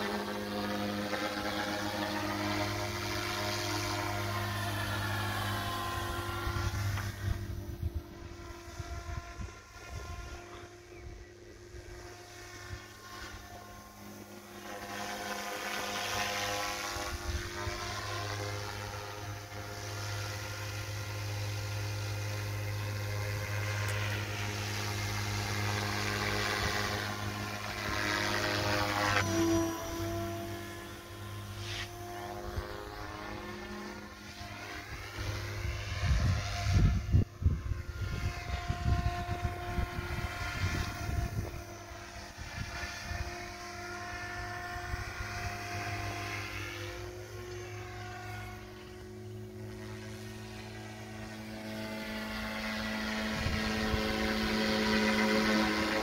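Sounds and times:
helicopter rotor hum: 0.0s - 56.0s
high motor whine: 0.0s - 56.0s.

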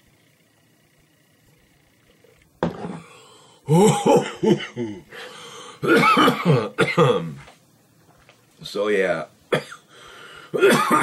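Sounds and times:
man coughing: 3.7s - 5.0s, 5.8s - 7.3s, 9.5s - 9.8s, 10.6s - 11.0s.

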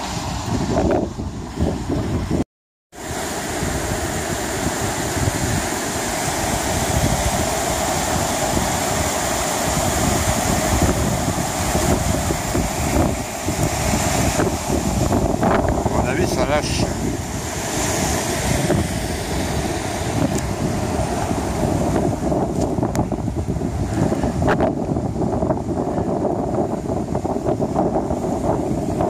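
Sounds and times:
wind buffeting microphone: 0.0s - 2.4s, 3.0s - 29.0s
river rushing: 3.0s - 29.0s.

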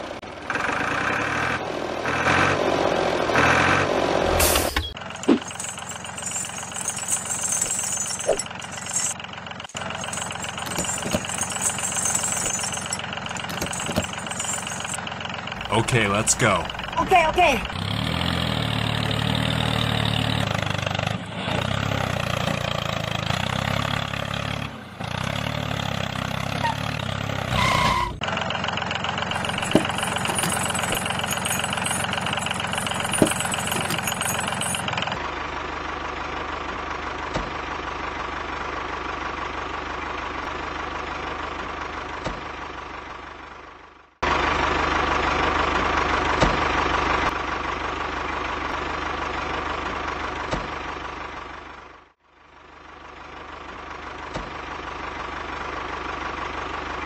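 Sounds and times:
tractor engine running: 4.4s - 43.2s.

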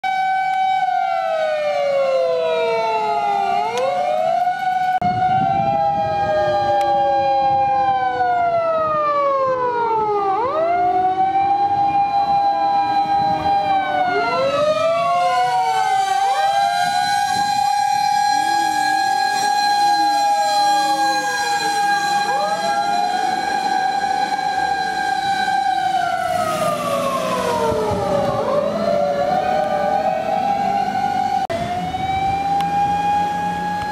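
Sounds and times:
fire engine sirens wailing: 0.0s - 33.9s
truck engine rumbling: 8.5s - 33.9s.

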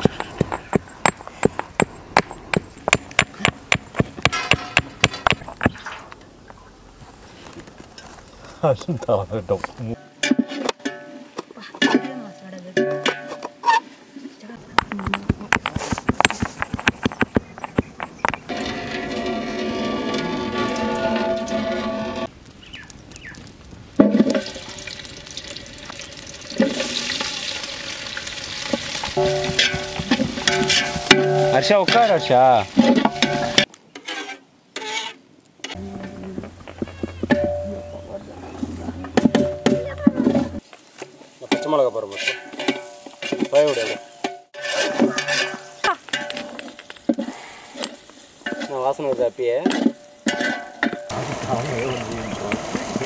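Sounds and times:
metal ladle scraping a pot: 17.5s - 22.3s, 26.5s - 40.6s, 41.5s - 46.7s
food sizzling in hot oil: 24.2s - 33.6s, 51.1s - 53.0s
wavering melody: 35.8s - 40.6s.

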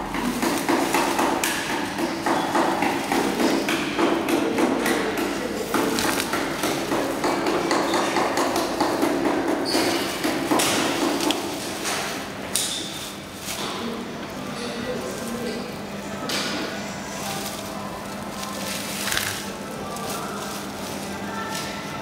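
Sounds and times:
plastic film rustling and crinkling: 5.6s - 7.2s, 14.8s - 16.2s, 17.0s - 22.0s.

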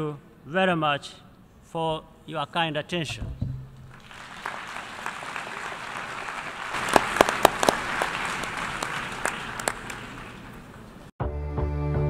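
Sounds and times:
sharp loud claps: 3.8s - 10.7s
audience applauding: 3.8s - 11.1s.

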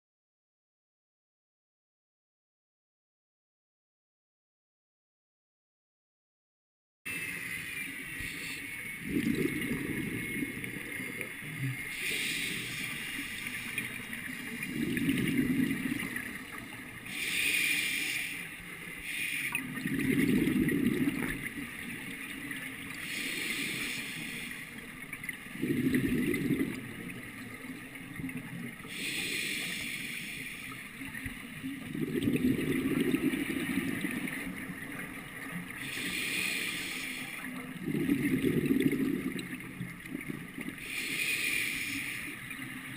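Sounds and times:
exhaled bubbles rumbling underwater: 7.9s - 42.9s
regulator inhale hiss: 8.2s - 8.8s, 11.6s - 19.8s, 22.9s - 25.0s, 28.8s - 31.4s, 35.8s - 37.7s, 40.8s - 42.7s.

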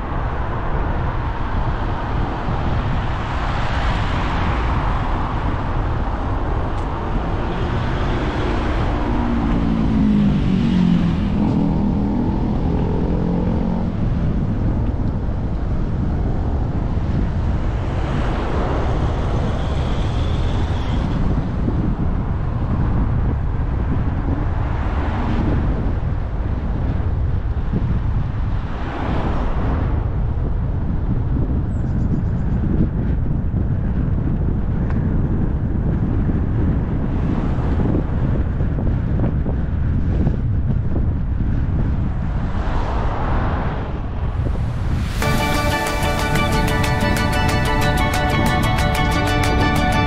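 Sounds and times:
wind buffeting microphone: 0.0s - 45.5s
passing vehicle engine: 2.8s - 21.7s, 42.4s - 50.0s.

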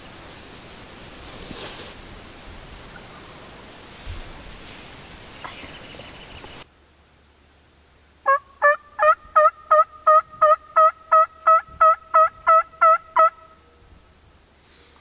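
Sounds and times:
turkey yelping: 8.3s - 13.5s.

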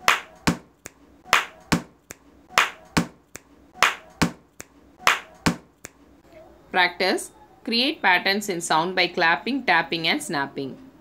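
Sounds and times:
finger snap: 0.0s - 6.0s
hand clap: 0.0s - 6.0s
hand tap: 1.4s - 3.2s, 3.8s - 4.4s, 5.1s - 5.7s.

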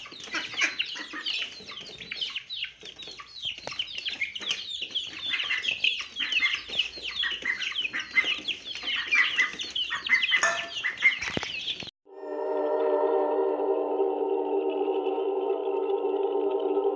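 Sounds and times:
chicks and ducklings peeping: 0.0s - 11.9s
music: 12.1s - 16.9s.

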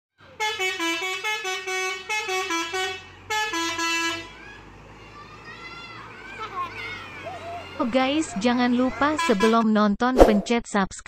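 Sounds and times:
truck musical horn melody: 0.2s - 5.4s, 6.0s - 9.6s
low engine hum: 0.2s - 9.5s
faint voices: 4.3s - 9.6s.

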